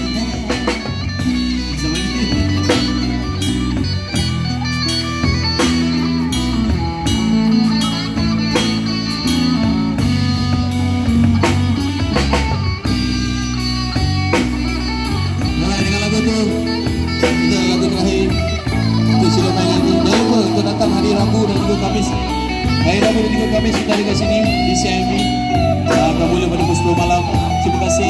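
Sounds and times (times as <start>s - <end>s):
man singing into a microphone: 0.0s - 3.1s, 15.5s - 28.0s
bass guitar: 0.0s - 28.0s
drum kit beat: 0.0s - 28.0s
electric guitars: 0.0s - 28.0s.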